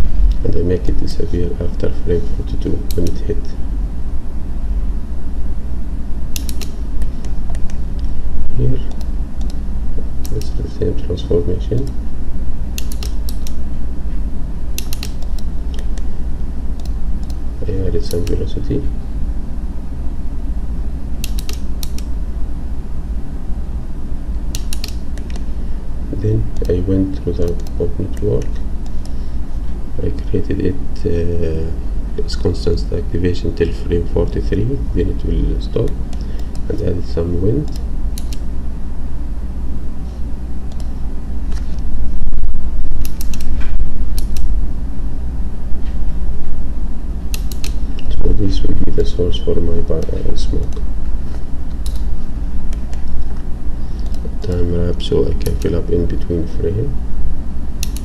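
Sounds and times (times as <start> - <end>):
low hum: 0.0 - 58.0
computer mouse clicks: 6.4 - 8.1, 10.2 - 10.6, 12.8 - 13.6, 14.8 - 16.1, 18.0 - 18.4, 21.2 - 22.1, 24.5 - 25.5, 27.4 - 29.2, 37.7 - 38.4, 43.0 - 44.5, 47.3 - 48.1, 51.7 - 52.1, 54.0 - 54.6, 55.4 - 55.8, 57.8 - 58.0.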